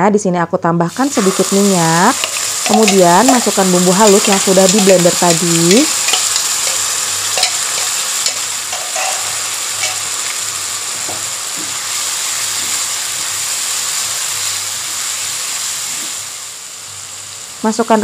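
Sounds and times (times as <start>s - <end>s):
spice paste sizzling in oil: 0.9s - 18.0s
utensil tapping and scraping pan: 2.2s - 4.9s, 5.7s - 10.4s.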